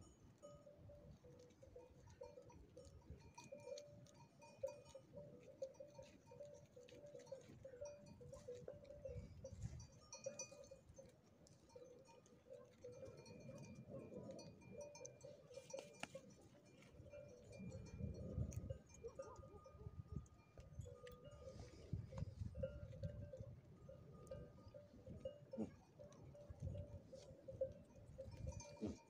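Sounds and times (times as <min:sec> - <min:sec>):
animal bells clinking: 0:00.0 - 0:29.0
animals feeding clicks and rustles: 0:00.1 - 0:29.0.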